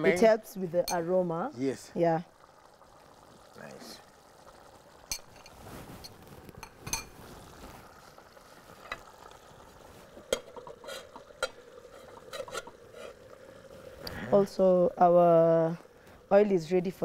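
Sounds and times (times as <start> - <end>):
faint steady sizzle: 0.0 - 17.0
pot lid clanking: 10.3 - 13.2.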